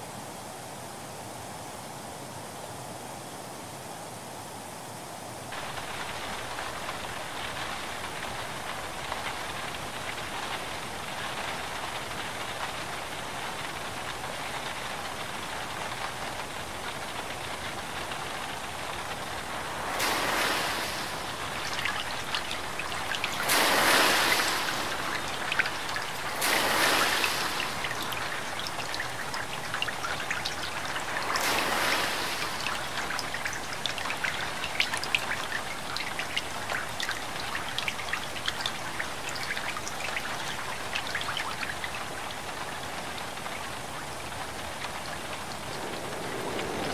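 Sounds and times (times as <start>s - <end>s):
raindrops pattering on car: 5.5s - 46.9s
cars swishing through deep water: 16.9s - 46.9s
floodwater sloshing: 19.2s - 46.9s.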